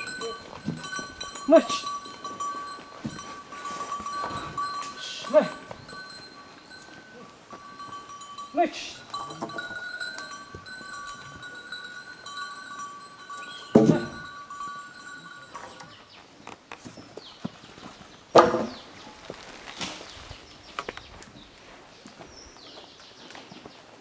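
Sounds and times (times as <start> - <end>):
high ringing tone: 0.0 - 16.0.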